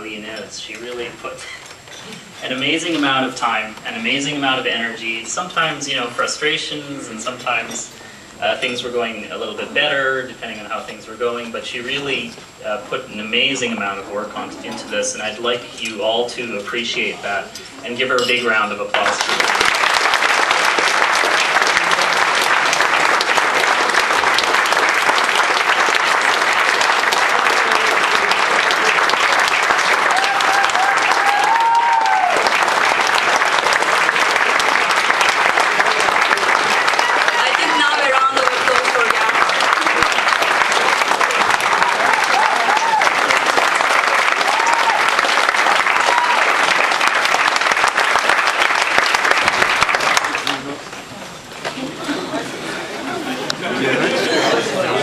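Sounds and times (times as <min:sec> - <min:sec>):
crowd applauding: 0:18.9 - 0:50.9.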